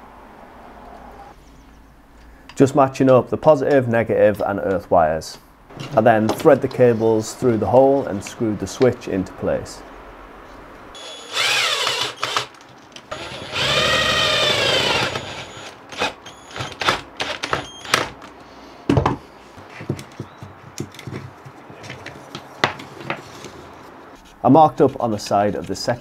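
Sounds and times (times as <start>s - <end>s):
cordless drill driving screws: 11.0s - 18.1s
clicks and knocks of handling: 18.1s - 23.6s.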